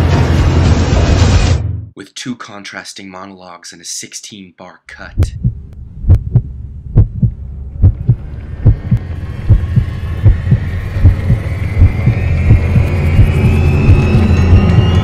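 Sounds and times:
deep heartbeat-like thump: 5.2 - 15.0
high rising drone: 5.5 - 15.0.

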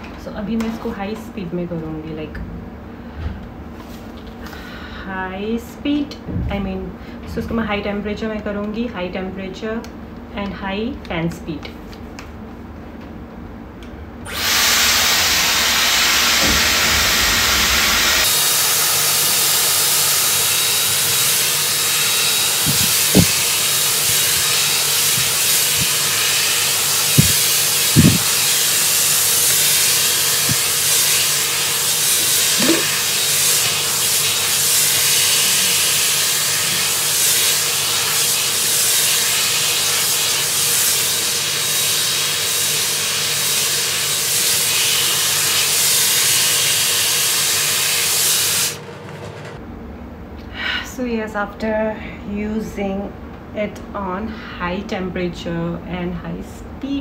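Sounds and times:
hair styler blowing air: 14.2 - 48.8.

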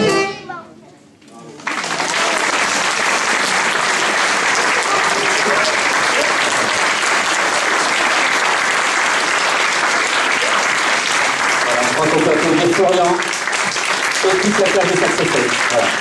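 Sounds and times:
audience applauding: 1.5 - 16.0
voices in crowd: 3.4 - 8.3.

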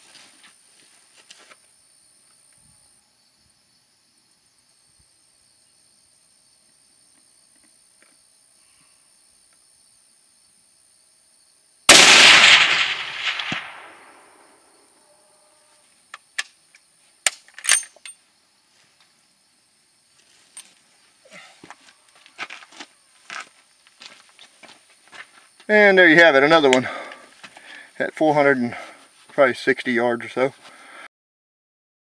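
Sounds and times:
rifle shot with echo: 11.9 - 14.6
high insect buzz: 12.8 - 17.1.

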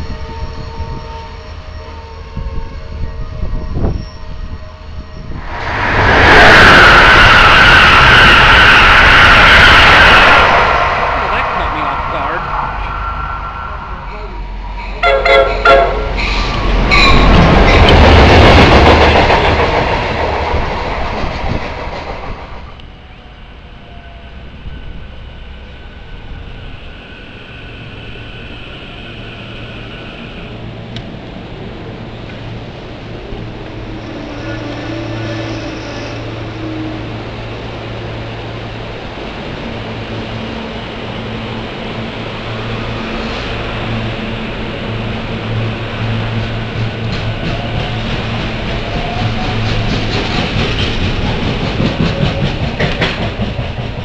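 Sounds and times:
locomotive engine rumble: 5.2 - 23.2
train wheels on rails: 5.4 - 54.0
train horn blast: 15.0 - 16.3.

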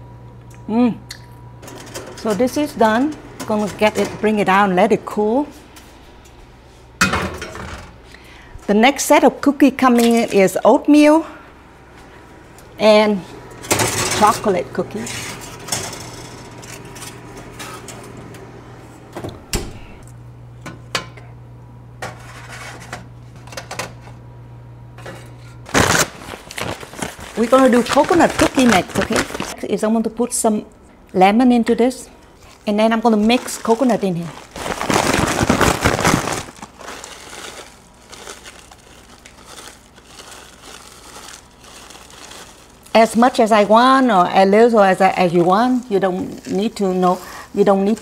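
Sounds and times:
steady low hum: 0.0 - 48.0
baking trays clicking and knocking: 13.7 - 14.4
crinkling and rustling dough: 25.7 - 29.6, 32.4 - 48.0.

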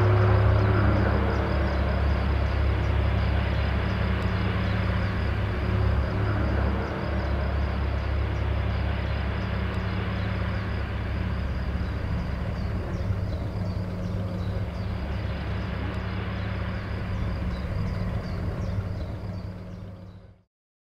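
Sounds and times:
propeller plane engines droning: 0.0 - 20.5.

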